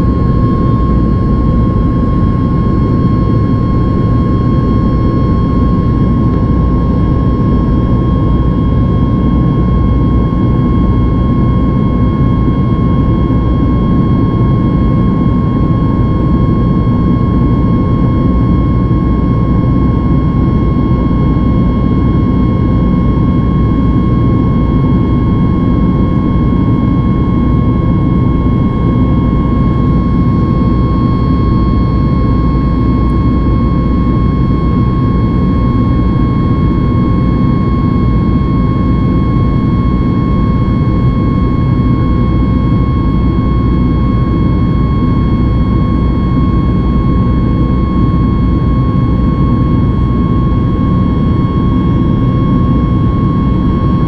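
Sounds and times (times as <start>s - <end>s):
high engine whine: 0.0s - 54.0s
jet engine rumble in cabin: 0.0s - 54.0s.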